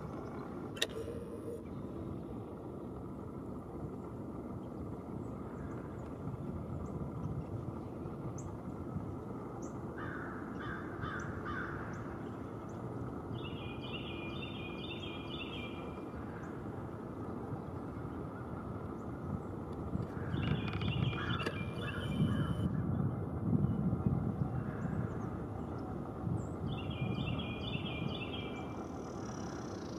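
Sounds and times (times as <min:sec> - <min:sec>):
harsh bird calls: 0:20.1 - 0:22.6.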